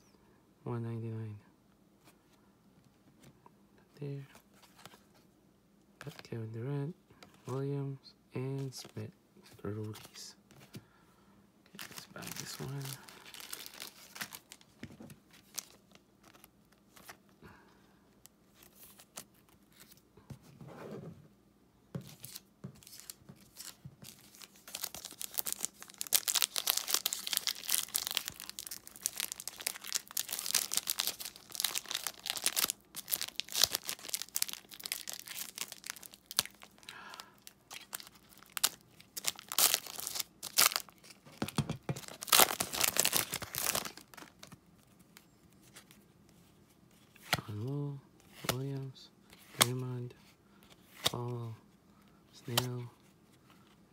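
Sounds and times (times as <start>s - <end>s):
foil wrapper crinkling: 11.8s - 14.7s, 22.9s - 41.2s, 42.0s - 44.6s.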